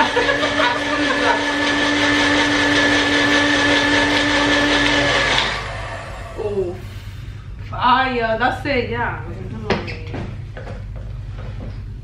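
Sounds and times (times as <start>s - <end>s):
blender motor running: 0.0s - 6.8s.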